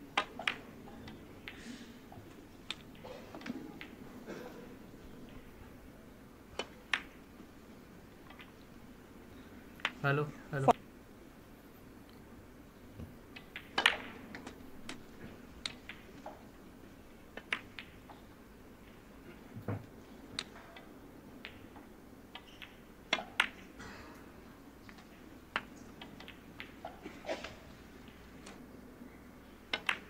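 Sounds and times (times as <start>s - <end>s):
faint steady hum: 0.0s - 30.0s.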